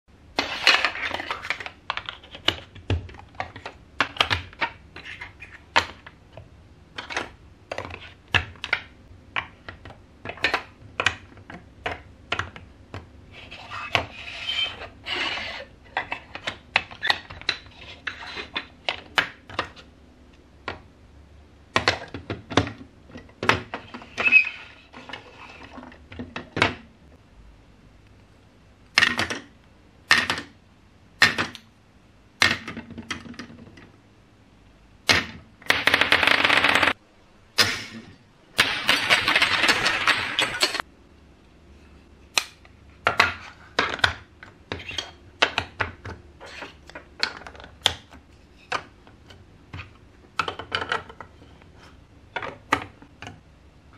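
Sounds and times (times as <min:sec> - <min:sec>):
plastic pieces rattling and scraping: 0:00.3 - 0:06.2, 0:06.9 - 0:12.6, 0:38.6 - 0:40.8
plastic blocks clicking: 0:06.9 - 0:13.1, 0:38.6 - 0:40.8.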